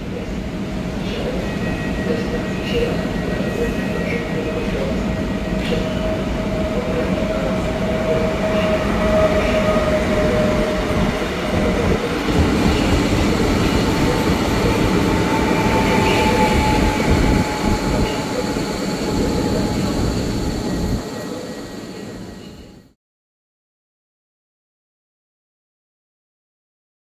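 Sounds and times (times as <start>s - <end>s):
train wheel-on-rail rumble: 0.0s - 22.9s.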